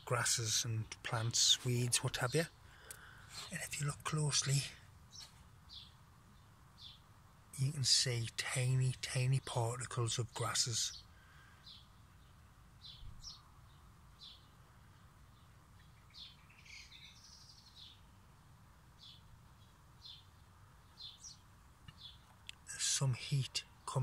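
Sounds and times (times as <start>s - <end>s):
low steady background noise: 0.0s - 24.0s
bird chirps: 10.3s - 18.1s, 19.0s - 24.0s.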